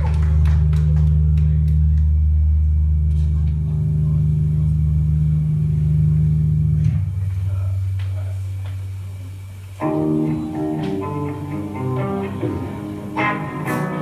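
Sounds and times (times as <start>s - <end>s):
rock band bass and guitars: 9.8s - 14.0s.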